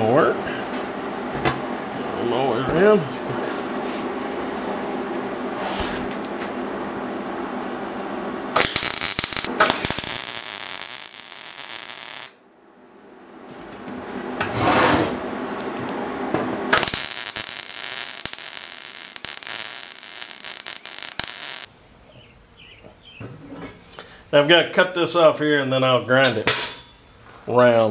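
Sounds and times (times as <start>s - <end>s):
welder arc crackling and sizzling: 8.5s - 12.4s, 16.7s - 21.7s.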